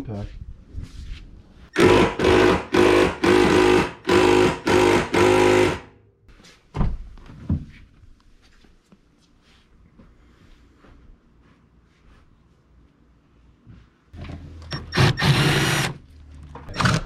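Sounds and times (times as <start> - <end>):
impact wrench hammering: 1.8 - 5.9.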